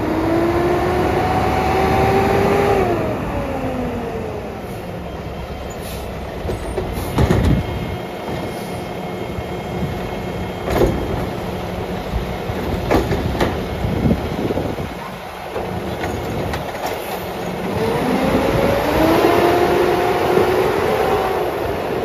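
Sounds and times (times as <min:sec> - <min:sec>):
garbage truck diesel and hydraulics: 0:00.0 - 0:22.0
truck pulling away whine: 0:00.0 - 0:22.0
cart clunking against hopper: 0:05.7 - 0:08.9, 0:09.5 - 0:18.1.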